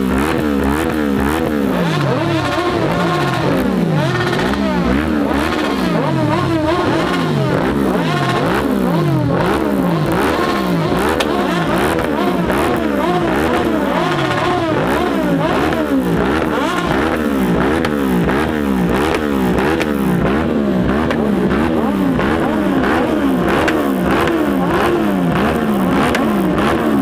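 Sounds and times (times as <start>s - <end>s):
motorcycle engines revving: 0.0s - 27.0s.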